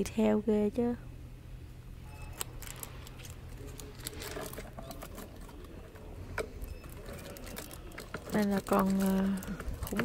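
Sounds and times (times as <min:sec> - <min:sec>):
low steady hum: 0:00.0 - 0:10.0
toy handling clicks and rustles: 0:02.4 - 0:10.0.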